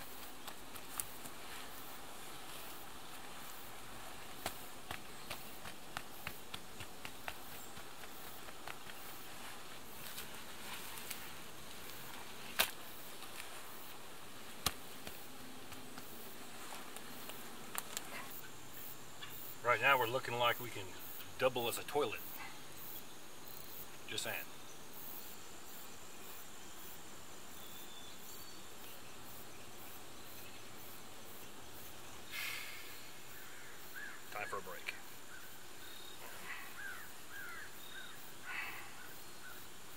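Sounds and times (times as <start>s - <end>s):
faint ticks: 0.0s - 1.9s
faint steady hiss: 0.0s - 39.9s
insects chirping: 0.0s - 39.9s
sharp clicks on mud wall: 4.3s - 9.1s, 12.5s - 13.5s, 14.5s - 16.2s.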